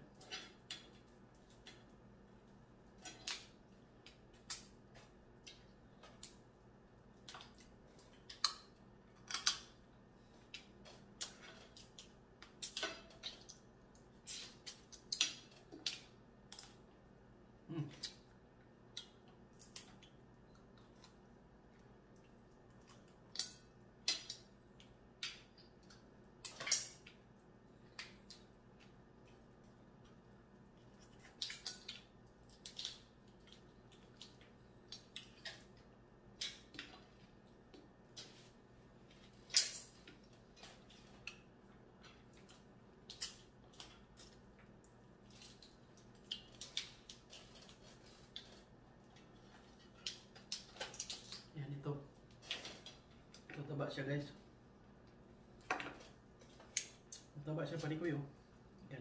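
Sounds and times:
crab shell cracking: 30.9s - 37.0s.

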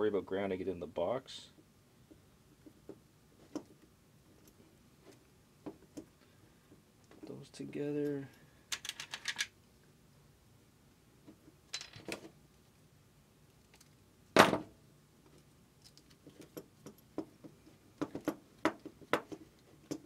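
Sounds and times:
wire nut clicking and rattling: 15.3s - 20.0s.

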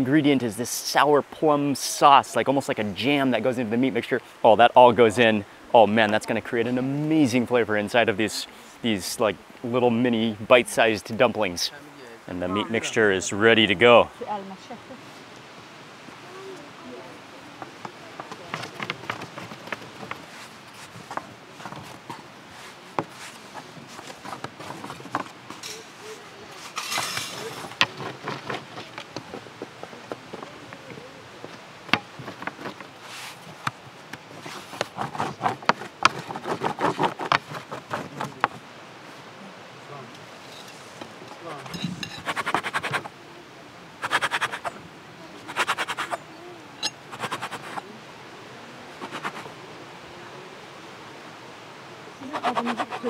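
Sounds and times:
utensils and dishes clinking: 26.7s - 27.8s, 41.6s - 42.3s
scratchy scraping strokes: 31.9s - 33.5s, 34.3s - 38.6s, 41.6s - 43.1s, 44.0s - 44.8s, 45.4s - 46.2s, 46.8s - 47.8s, 49.0s - 49.5s, 52.3s - 53.0s.

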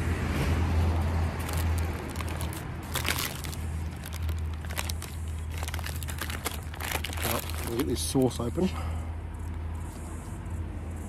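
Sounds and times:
paper bag rustling: 1.3s - 8.2s.

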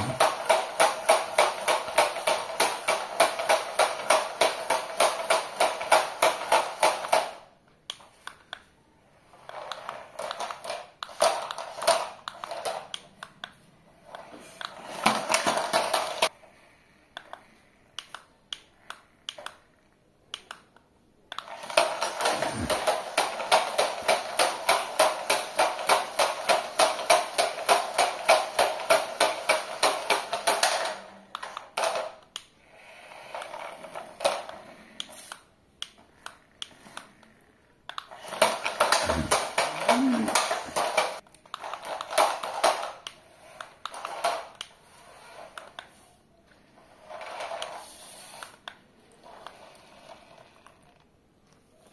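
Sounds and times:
toy car motors whirring: 21.4s - 51.9s.

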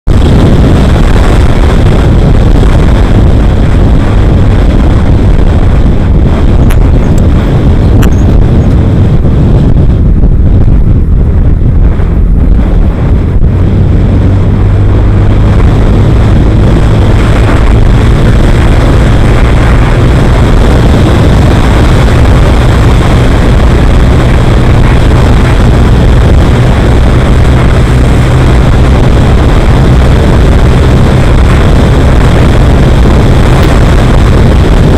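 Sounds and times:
vehicle engine humming: 0.0s - 34.9s
wind rushing on microphone: 0.0s - 34.9s.

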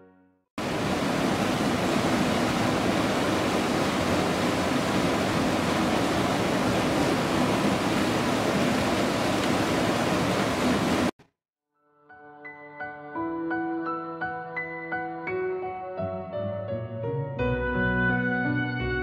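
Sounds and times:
waterfall rushing: 0.6s - 11.1s.

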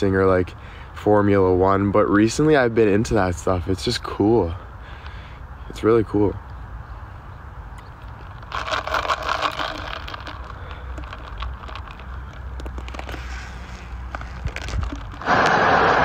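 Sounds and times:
plastic cup crackling: 8.0s - 16.0s
wind rumble on microphone: 13.8s - 16.0s
loud rushing noise: 15.2s - 16.0s.

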